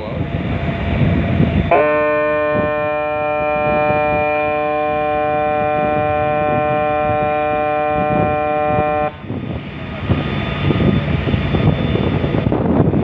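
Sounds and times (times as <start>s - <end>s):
ship's horn blast: 1.6s - 9.4s.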